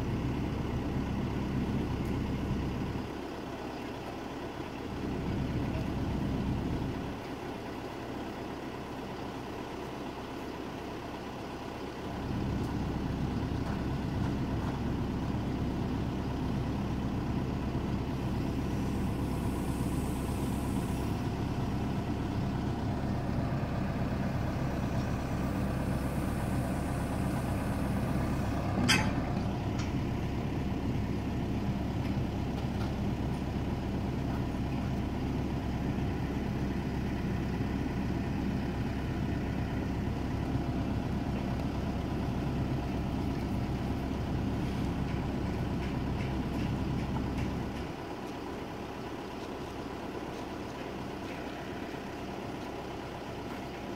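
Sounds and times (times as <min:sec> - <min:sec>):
diesel engine idling: 0:00.0 - 0:53.9
sharp metal clank: 0:28.8 - 0:29.2.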